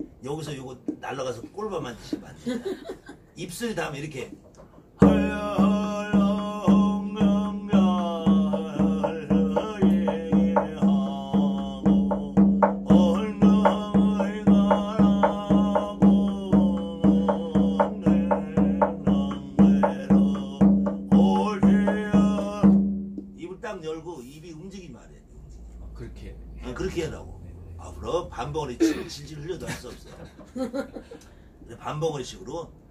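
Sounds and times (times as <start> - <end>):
drum beats: 0.0 - 3.2, 4.1 - 23.6.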